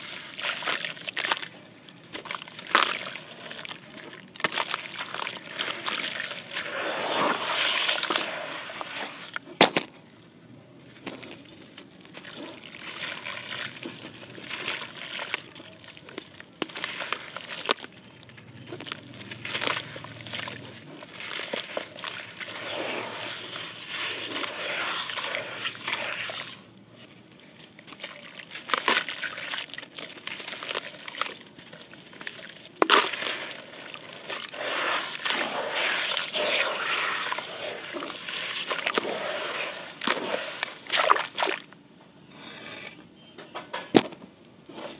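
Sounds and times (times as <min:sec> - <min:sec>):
grit splattering into water: 0:00.0 - 0:09.9, 0:10.9 - 0:26.7, 0:27.7 - 0:41.8
wet concrete crumbling by hand: 0:00.0 - 0:10.0, 0:10.9 - 0:41.8.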